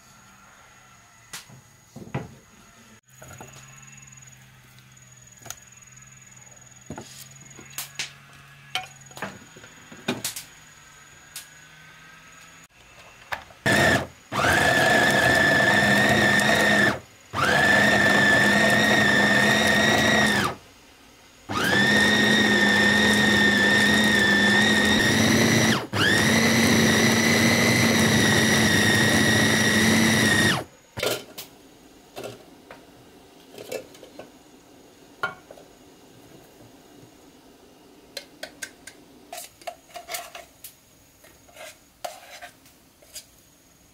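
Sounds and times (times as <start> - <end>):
electric food chopper whine: 13.6 - 20.6, 21.5 - 31.1.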